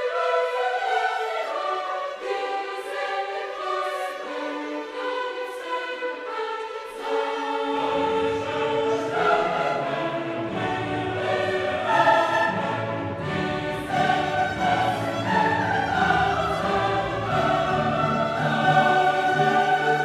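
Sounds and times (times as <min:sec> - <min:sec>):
gospel band playing: 0:09.2 - 0:20.0.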